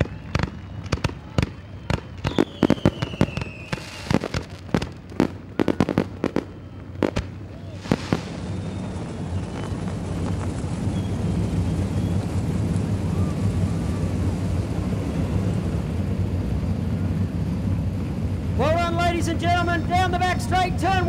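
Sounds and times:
falling firework whistle: 0.0s - 12.4s
fireworks cracking and banging: 0.0s - 16.1s
racing car engines droning: 4.6s - 21.0s.

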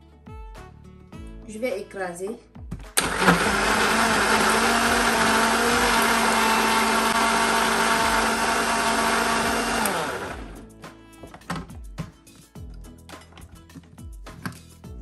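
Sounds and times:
electric blender motor running: 3.0s - 10.6s.

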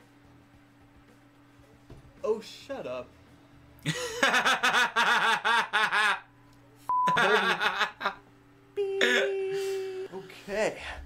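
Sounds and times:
man laughing: 3.8s - 6.3s, 7.1s - 8.2s.

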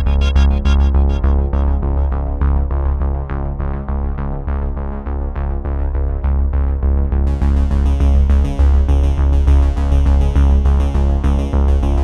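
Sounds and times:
bright high percussion: 0.0s - 2.0s
synthesizer music with heavy bass: 0.0s - 3.0s, 7.3s - 12.0s.

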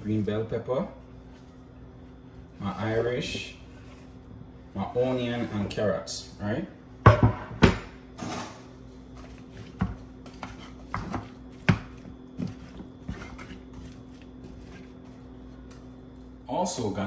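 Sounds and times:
wooden spoon scraping metal pan: 4.8s - 6.1s, 12.4s - 15.0s.

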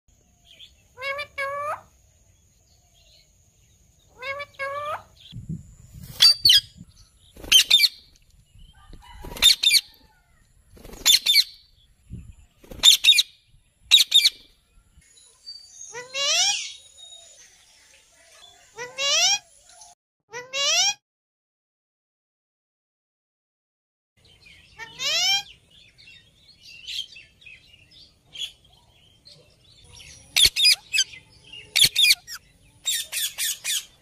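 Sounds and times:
parakeet two-part calls: 30.3s - 34.0s.

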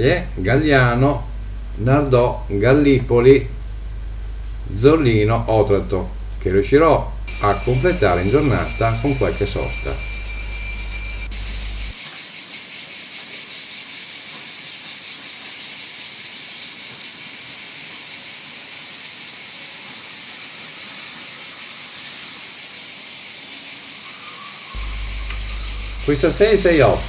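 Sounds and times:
cicadas buzzing: 7.2s - 27.0s.

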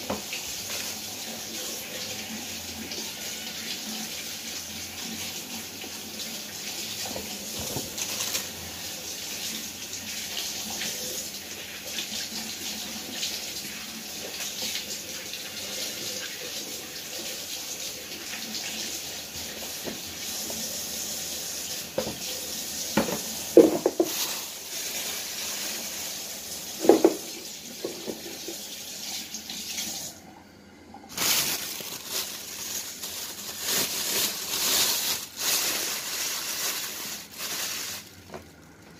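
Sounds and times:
tap running into a sink: 0.0s - 1.0s, 7.0s - 8.2s, 19.6s - 20.6s, 21.9s - 24.3s, 26.8s - 30.1s
plastic bag crinkling: 7.6s - 8.6s, 23.6s - 27.2s, 31.1s - 38.9s.

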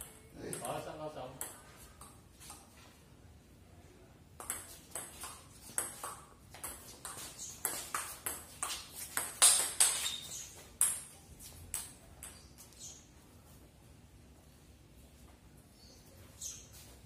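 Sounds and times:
ping-pong ball clicking: 0.0s - 2.6s, 4.4s - 11.1s.

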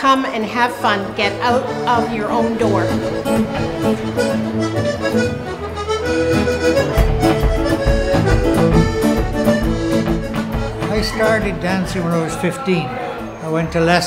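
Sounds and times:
accordion: 0.0s - 14.0s
bass and drum beat: 6.4s - 12.2s.

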